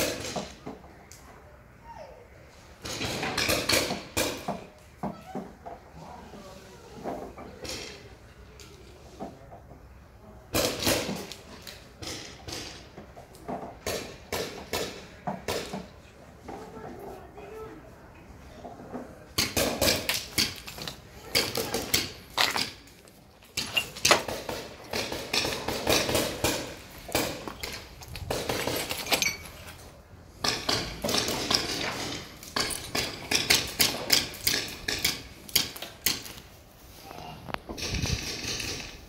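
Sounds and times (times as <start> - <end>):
footsteps crunching over rubble: 20.2 - 25.1, 26.8 - 30.0.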